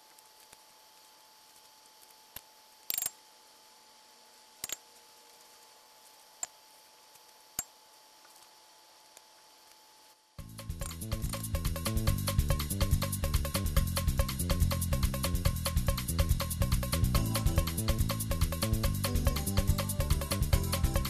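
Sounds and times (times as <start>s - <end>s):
clicks and crinkles of gloved hands: 0.0s - 3.1s
faint steady hum: 0.0s - 21.0s.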